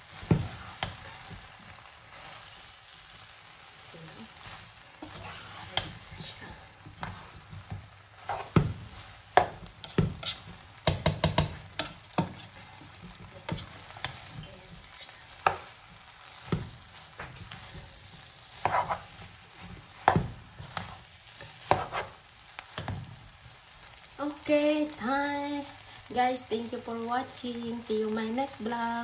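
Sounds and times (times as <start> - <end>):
low sizzle of frying: 0.0 - 29.0
spatula knocking and scraping pan: 0.2 - 1.6, 4.4 - 23.2.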